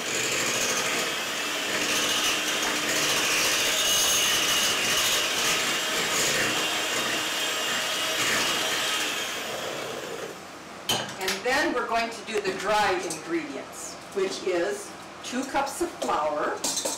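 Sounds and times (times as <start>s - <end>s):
electric mixer whining: 0.0s - 10.4s.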